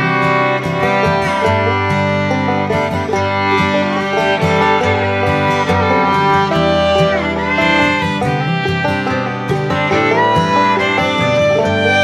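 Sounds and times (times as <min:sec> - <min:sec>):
fiddle tune: 0:00.0 - 0:12.0
guitar accompaniment: 0:00.0 - 0:12.0.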